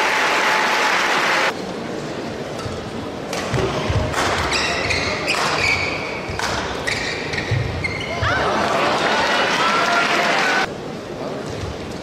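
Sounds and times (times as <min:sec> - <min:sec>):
shoes squeaking on court: 0:04.4 - 0:08.3.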